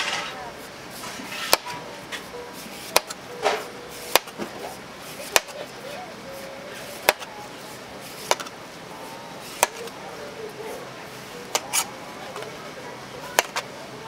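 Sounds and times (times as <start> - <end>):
faint voices: 0.0 - 14.0
knife chopping on cutting board: 2.8 - 4.5, 5.2 - 5.6, 6.9 - 7.3, 8.2 - 8.5, 9.5 - 9.9.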